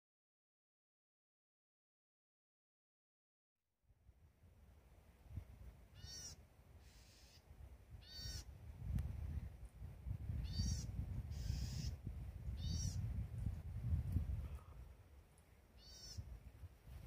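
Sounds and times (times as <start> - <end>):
bird giving harsh calls: 6.0 - 7.4, 8.0 - 8.5, 10.4 - 12.0, 12.6 - 13.0, 15.8 - 16.3.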